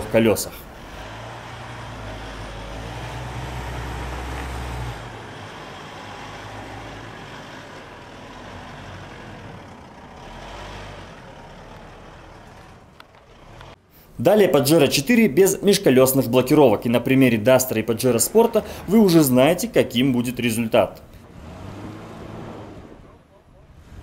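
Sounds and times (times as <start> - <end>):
suv engine pulling under load: 0.0 - 13.9, 21.0 - 24.0.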